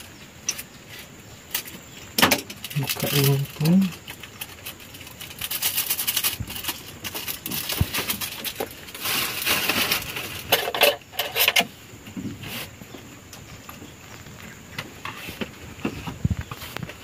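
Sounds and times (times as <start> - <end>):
packaging crackling: 2.4 - 10.8.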